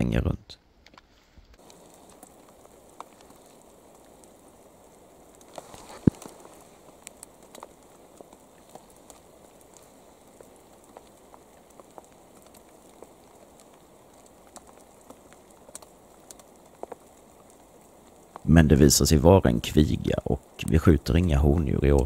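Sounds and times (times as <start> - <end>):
single raindrops ticking: 0.8 - 18.5
rain hissing: 1.5 - 22.0.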